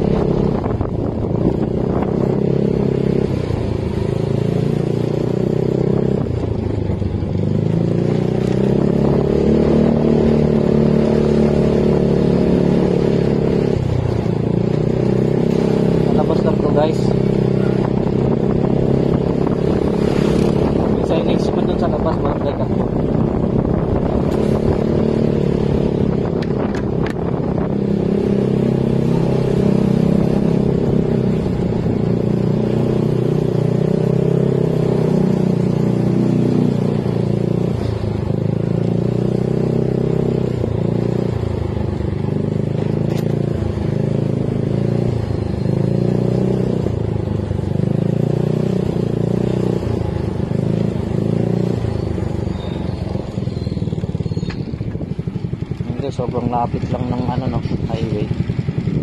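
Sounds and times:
motor scooter engine running: 50.0s - 59.0s.

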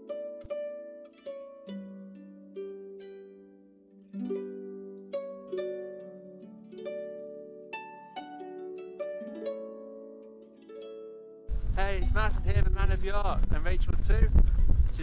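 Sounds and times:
slow plucked tune: 0.0s - 14.7s
held low notes: 11.5s - 15.0s.

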